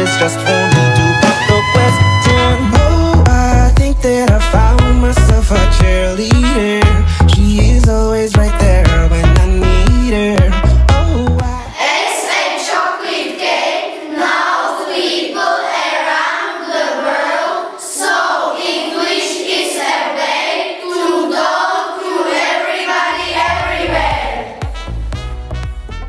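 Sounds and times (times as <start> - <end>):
backing music: 0.0 - 11.8, 22.7 - 26.0
children singing together: 11.7 - 24.6.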